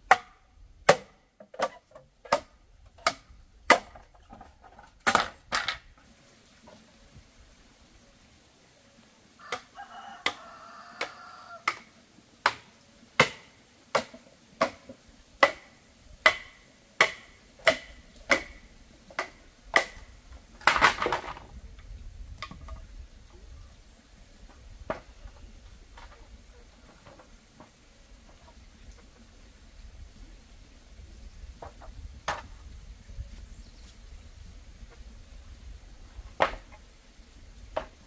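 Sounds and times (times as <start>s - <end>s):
scraping rustle: 24.4s - 30.5s.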